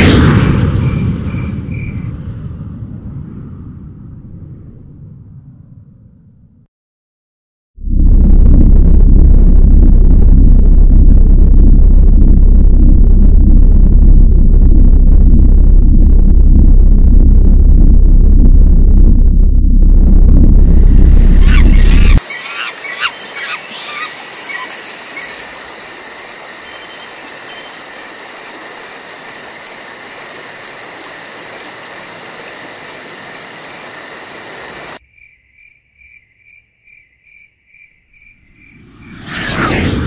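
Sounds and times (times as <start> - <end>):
faint pulsing tone: 7.8 - 22.2
low rumble: 7.8 - 22.2, 38.5 - 40.0
rush of noise: 7.8 - 35.0, 38.7 - 40.0
drone motors whining: 19.8 - 22.2.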